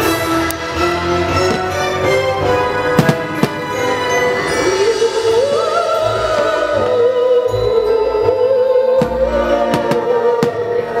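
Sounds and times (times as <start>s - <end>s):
music with held melody: 0.0s - 11.0s
firework shells booming: 2.8s - 4.1s
sharp firework crack: 3.0s - 3.8s.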